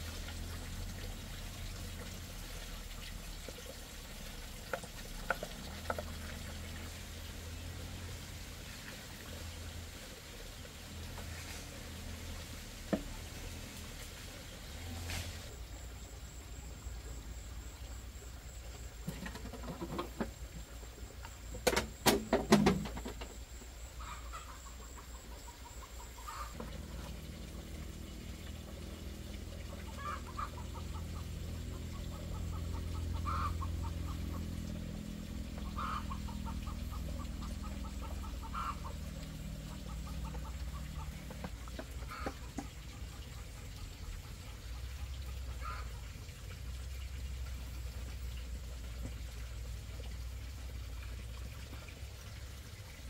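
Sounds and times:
chickens clucking: 0:19.0 - 0:20.8, 0:24.0 - 0:27.2, 0:29.5 - 0:34.6, 0:35.5 - 0:45.9.

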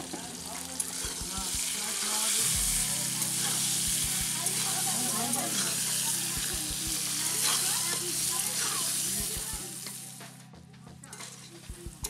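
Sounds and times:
potatoes sizzling in oil: 0:00.0 - 0:10.4, 0:11.1 - 0:12.0
metal spatula stirring: 0:03.1 - 0:10.0, 0:11.1 - 0:11.7.

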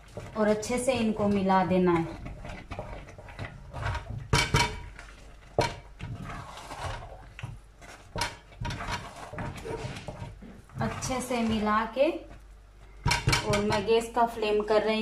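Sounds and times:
wooden spatula scraping rice in pot: 0:00.0 - 0:13.9
wood knocking against steel pot: 0:01.9 - 0:06.2, 0:07.4 - 0:11.8, 0:13.0 - 0:13.9.

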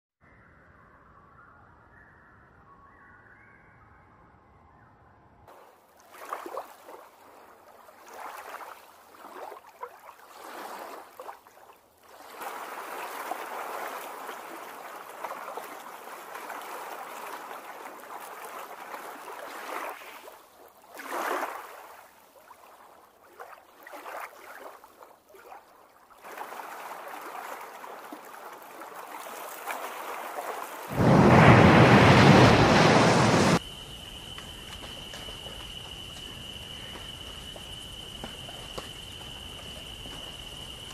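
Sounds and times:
water running and lapping: 0:05.5 - 0:33.6, 0:34.2 - 0:40.9
loud rush of noise: 0:30.9 - 0:33.6
high insect-like trill: 0:33.6 - 0:40.9.

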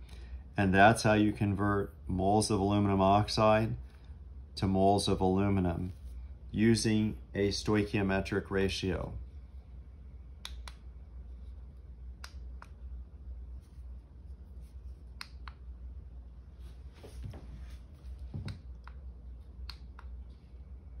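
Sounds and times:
low steady hum: 0:00.0 - 0:21.0
soft rustle: 0:13.4 - 0:15.2, 0:16.4 - 0:18.6.

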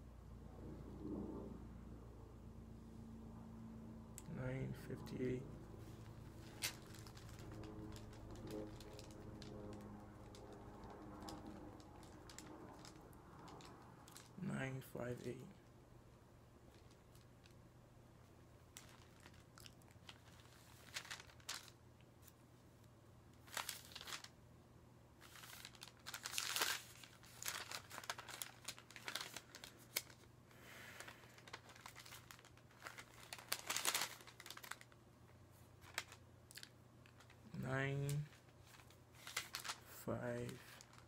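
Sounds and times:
thin pages rustling: 0:05.8 - 0:14.4, 0:18.7 - 0:22.4, 0:23.4 - 0:24.4, 0:25.2 - 0:35.0, 0:35.8 - 0:37.5, 0:38.2 - 0:41.0.

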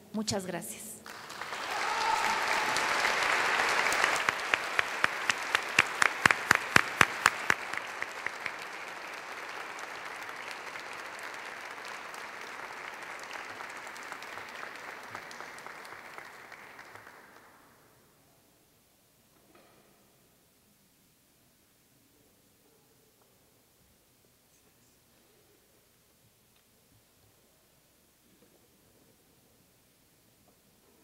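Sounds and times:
sharp close claps: 0:01.0 - 0:17.4
audience applauding: 0:01.0 - 0:17.8.

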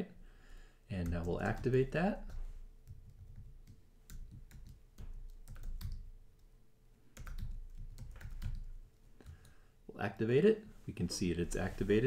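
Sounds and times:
typing on computer keyboard: 0:01.0 - 0:06.5, 0:07.2 - 0:09.6.

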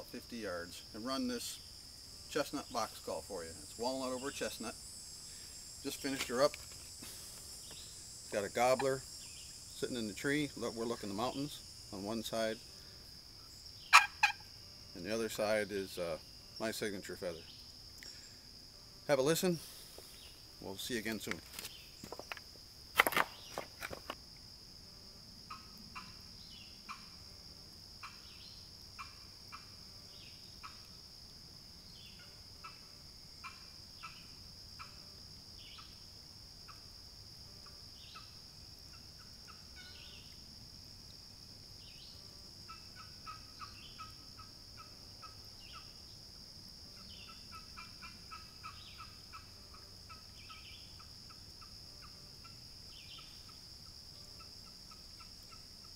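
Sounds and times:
turkey box call yelping: 0:13.9 - 0:14.4.

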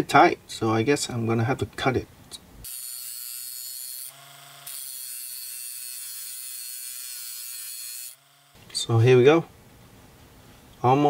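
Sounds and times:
rotary tool high whine: 0:02.6 - 0:08.8.

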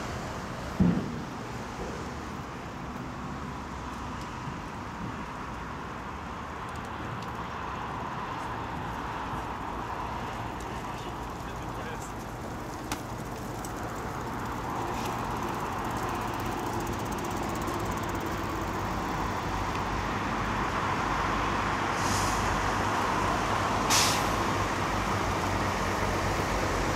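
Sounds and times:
dump truck diesel engine: 0:13.3 - 0:26.9
air brakes hissing: 0:21.9 - 0:22.7, 0:23.8 - 0:24.5.

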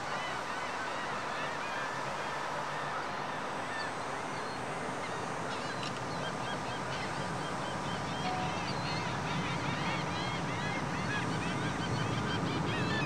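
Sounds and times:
birds chirping: 0:08.2 - 0:09.2.

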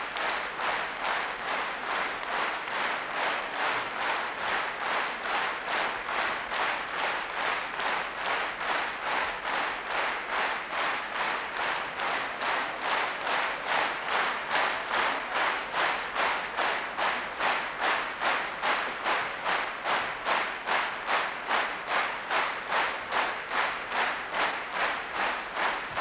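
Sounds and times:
crowd clapping in unison: 0:00.0 - 0:26.0.

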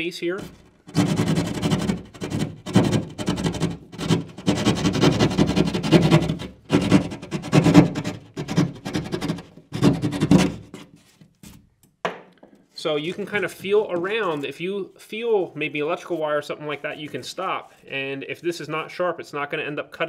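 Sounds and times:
saw rasping through drywall: 0:00.4 - 0:11.0.

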